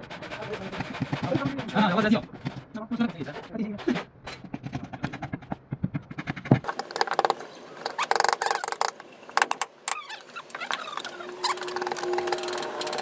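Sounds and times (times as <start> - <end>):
gouge scraping wood: 0.0 - 7.0.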